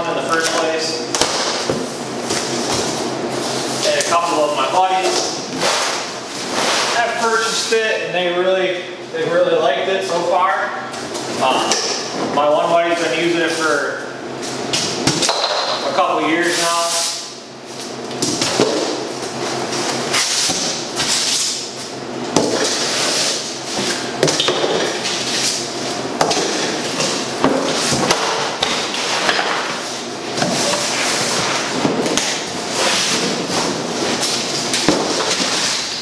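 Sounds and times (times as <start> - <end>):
foam sheets scraping out of box: 5.6 - 7.2.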